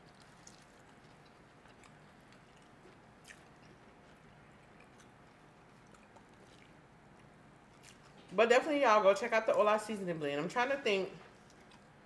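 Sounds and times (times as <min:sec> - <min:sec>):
faint chewing: 0:00.0 - 0:08.4, 0:11.2 - 0:12.0.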